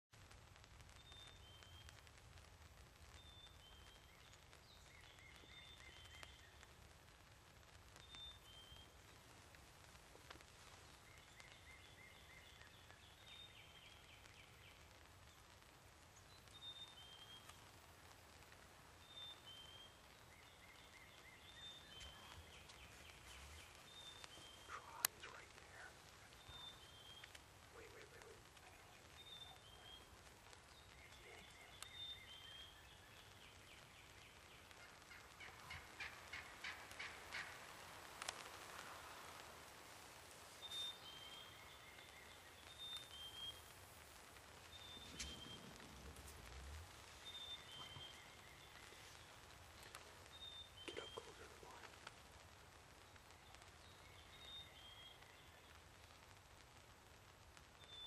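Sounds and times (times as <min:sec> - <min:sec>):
high whistled bird calls: 0:19.0 - 0:34.5, 0:40.5 - 0:43.8, 0:44.6 - 0:49.3
short sharp bird notes: 0:44.7 - 0:49.2.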